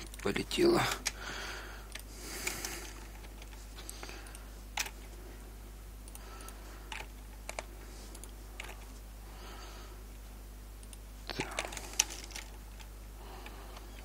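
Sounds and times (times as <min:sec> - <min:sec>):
computer keystrokes and clicks: 0:00.0 - 0:01.2, 0:01.9 - 0:05.0, 0:06.0 - 0:08.9, 0:10.8 - 0:14.0
faint low hum: 0:00.0 - 0:14.0.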